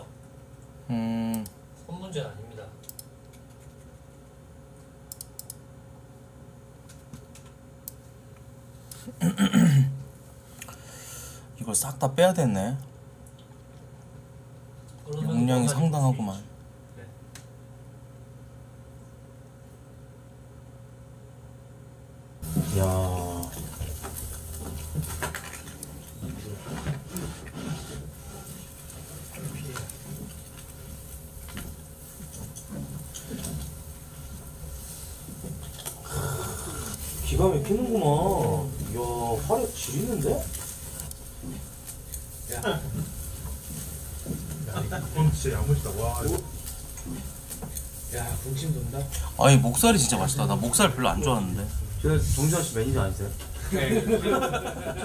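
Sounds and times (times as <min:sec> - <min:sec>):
low room hum: 0:00.0 - 0:55.0
keyboard and mouse clicks: 0:05.1 - 0:05.6
wood fire crackling: 0:22.4 - 0:55.0.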